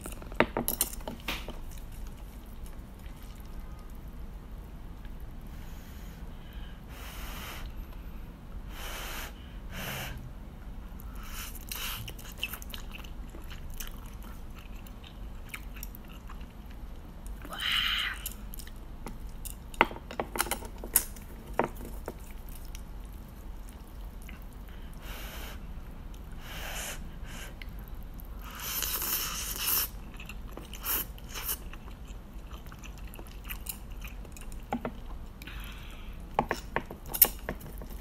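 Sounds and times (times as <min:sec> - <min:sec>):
wet chewing and slurping: 0:01.2 - 0:04.1, 0:11.2 - 0:17.4, 0:27.6 - 0:35.8.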